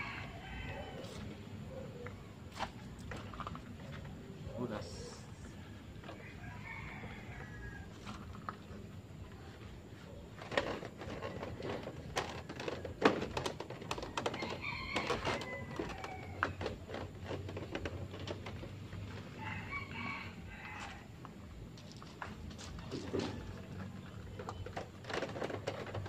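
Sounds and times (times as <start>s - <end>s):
rooster crowing: 0.0s - 1.2s, 6.2s - 8.2s, 19.4s - 21.1s.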